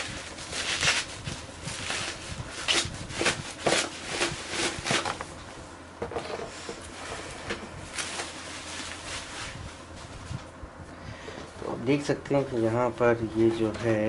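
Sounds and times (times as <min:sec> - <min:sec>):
bubble wrap crinkling: 0:00.0 - 0:05.3, 0:07.9 - 0:10.5.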